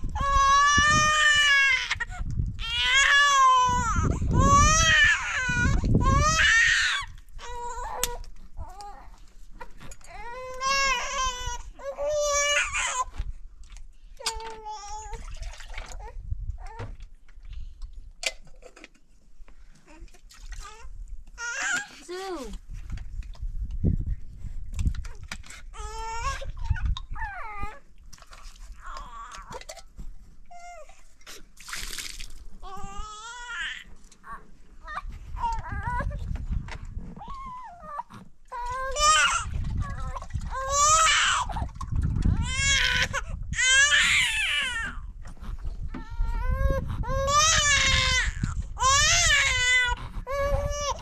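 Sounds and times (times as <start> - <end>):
infant crying: 37.2 - 41.6, 42.4 - 45.0.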